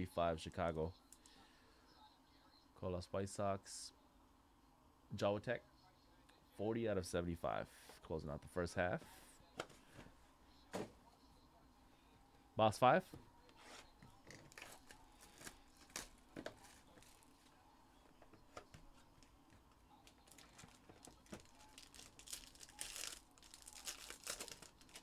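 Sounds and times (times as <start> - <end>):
wrapper crinkling and tearing: 20.0 - 25.0.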